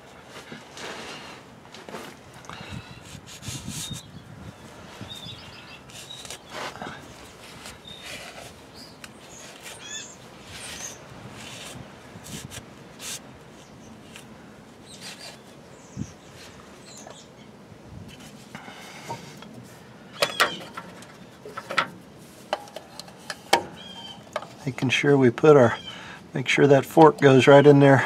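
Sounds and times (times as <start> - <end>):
faint bird chirps: 7.8 - 11.0, 23.7 - 24.3
clicks and knocks on metal: 20.2 - 24.6.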